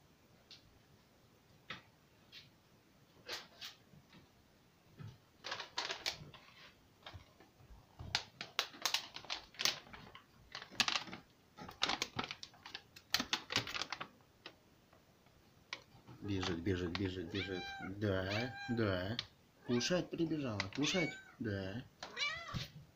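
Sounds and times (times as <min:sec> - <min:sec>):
plastic bag crinkling: 0:05.4 - 0:07.2, 0:08.0 - 0:14.6, 0:15.7 - 0:21.2.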